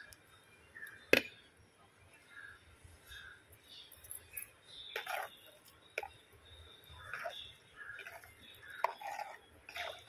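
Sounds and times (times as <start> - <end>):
spoon stirring liquid: 3.9 - 10.0.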